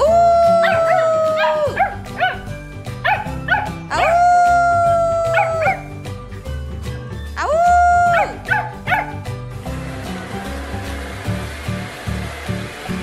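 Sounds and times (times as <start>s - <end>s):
background music with bass line: 0.0s - 13.0s
puppies howling: 0.1s - 6.0s, 8.0s - 9.2s
puppy yips: 0.6s - 4.2s, 5.2s - 5.9s, 8.1s - 9.2s.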